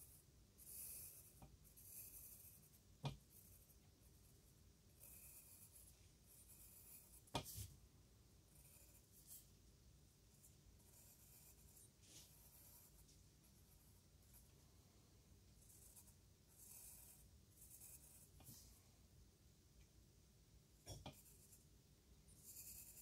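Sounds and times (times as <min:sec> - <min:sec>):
pencil scratching on paper: 0:00.0 - 0:07.7, 0:08.5 - 0:09.5, 0:10.3 - 0:14.6, 0:15.6 - 0:18.8, 0:20.9 - 0:21.7, 0:22.3 - 0:23.0.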